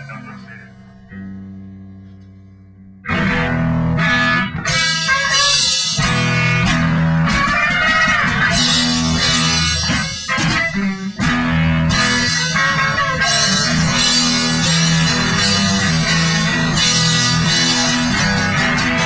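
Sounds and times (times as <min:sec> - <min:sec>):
rock music with guitar: 0:00.0 - 0:19.0.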